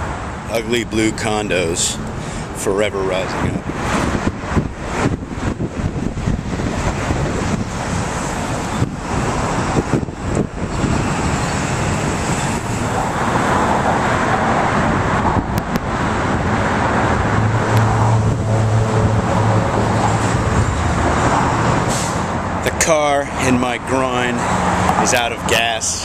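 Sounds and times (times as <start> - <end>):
road traffic noise: 0.0 - 26.0
deep engine hum: 3.3 - 22.7.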